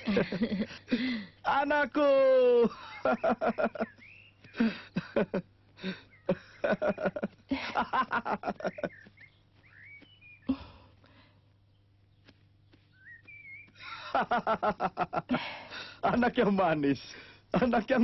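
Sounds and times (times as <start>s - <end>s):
man laughing: 0.0s - 9.1s, 13.8s - 16.5s, 17.5s - 18.0s.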